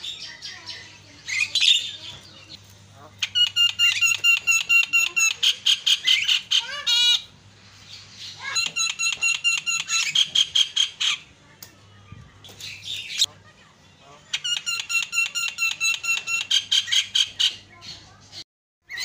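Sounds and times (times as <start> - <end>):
bird rattling trill: 3.2 - 7.2.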